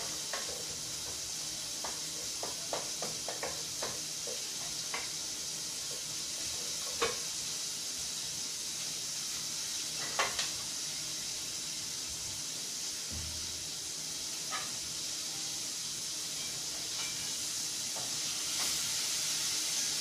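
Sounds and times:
wooden spoon stirring and tapping pot: 0.0 - 5.1
vegetables sizzling in a pot: 0.0 - 20.0.

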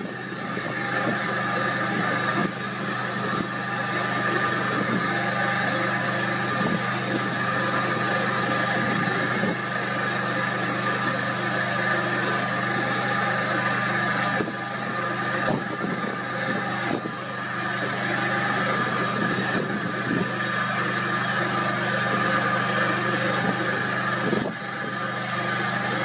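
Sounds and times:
engine idling hum: 0.0 - 26.0
wind noise: 6.5 - 7.4, 15.4 - 17.2, 19.0 - 20.4, 23.4 - 24.6.

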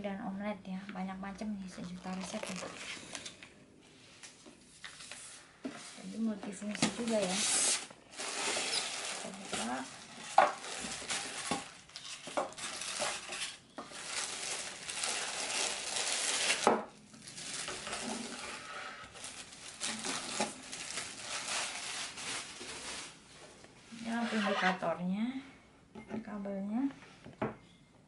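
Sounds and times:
plastic bag crinkling: 1.8 - 3.4, 6.9 - 23.3.

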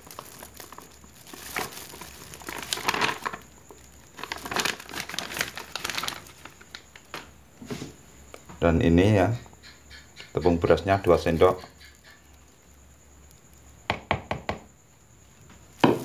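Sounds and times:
plastic bag crinkling: 0.0 - 7.3.

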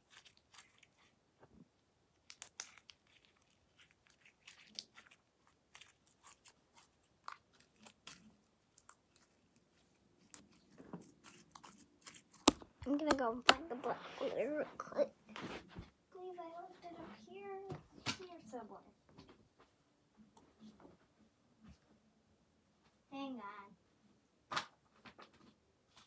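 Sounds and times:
slime clicking and crackling: 0.0 - 1.2, 2.1 - 13.8.

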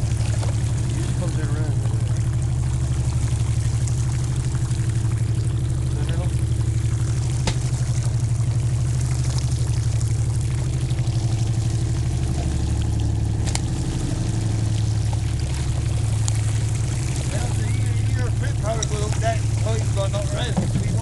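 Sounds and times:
boat engine throbbing: 0.0 - 21.0
water pouring into sea: 0.0 - 21.0.

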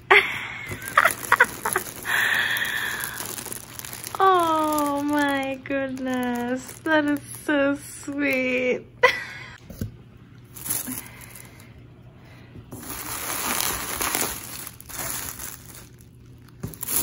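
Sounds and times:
plastic wrapping crinkling: 0.6 - 8.6, 10.5 - 11.7, 12.7 - 17.0.

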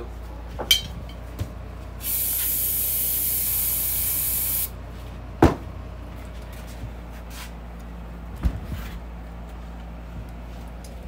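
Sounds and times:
aerosol spray hiss: 2.0 - 4.7.

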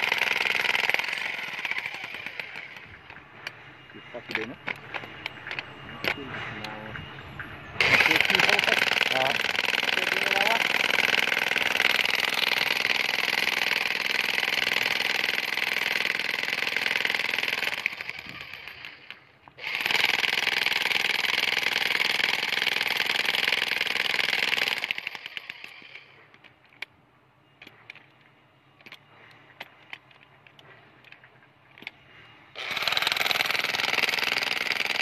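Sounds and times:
demolition hammer chiselling rock: 7.8 - 25.7, 32.6 - 35.0.

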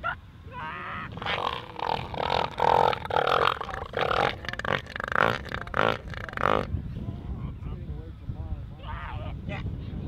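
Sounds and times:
elephant seals calling: 1.0 - 6.7.

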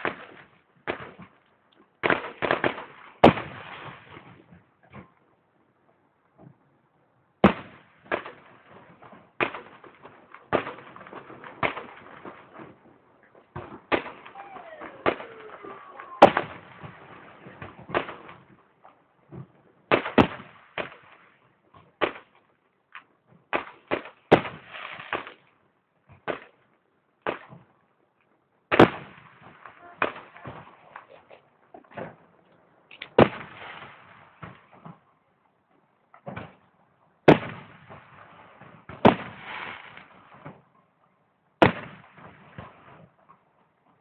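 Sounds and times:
crackling hiss of fireworks: 2.0 - 5.0, 23.5 - 25.5, 32.9 - 34.8, 37.3 - 40.6
firework shells bursting: 13.5 - 18.5.

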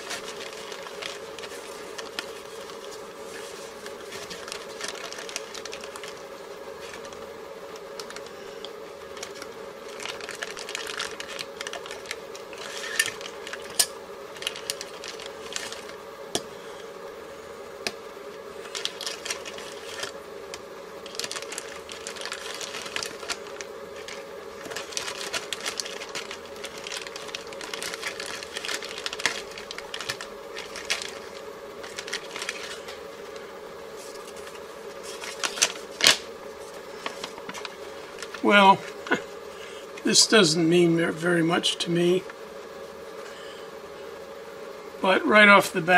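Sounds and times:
plastic bags crinkling: 0.0 - 7.2, 7.8 - 16.0, 18.6 - 39.2
steady hum: 0.0 - 45.9.

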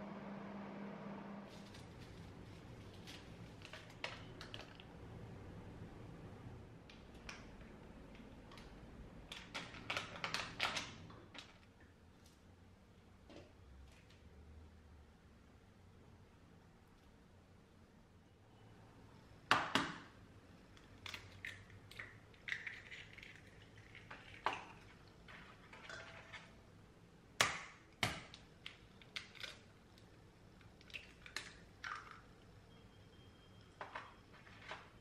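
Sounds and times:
eggshell crackling: 21.0 - 25.7.

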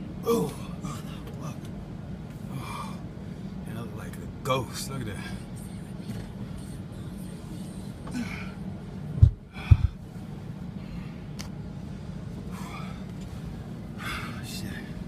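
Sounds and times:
low rumble inside truck cab: 0.0 - 15.0
man breathing hard: 2.4 - 3.5, 9.4 - 10.1, 12.4 - 15.0
heavy low thumps: 9.2 - 10.0.

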